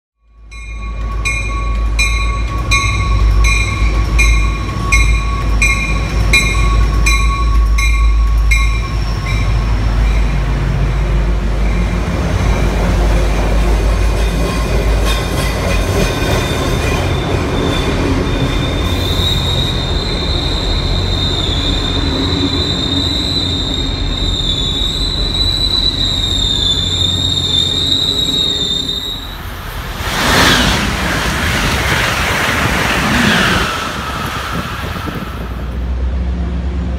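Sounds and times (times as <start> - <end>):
locomotive bell ringing: 0.2 - 11.9
diesel locomotive rumbling: 0.2 - 36.9
train coaches rolling past: 0.3 - 36.9
high wavering wheel squeal: 17.0 - 29.6.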